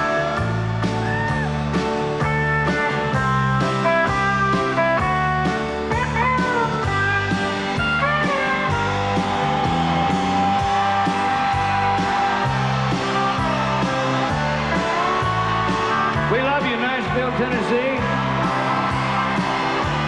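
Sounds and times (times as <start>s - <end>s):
country band playing: 0.0s - 20.0s
guitar bending notes: 2.2s - 16.4s.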